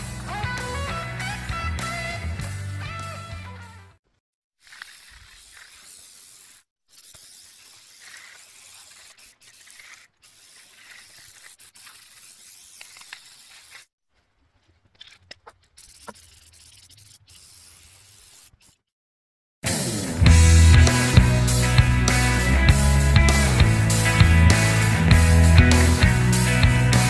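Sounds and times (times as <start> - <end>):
aerosol spray can hissing: 4.6 - 13.9, 15.7 - 18.8.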